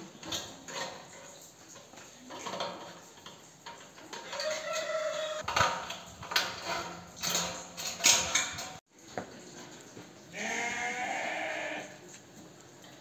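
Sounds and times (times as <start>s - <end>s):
sharp knocks and clatter: 5.4s - 9.3s.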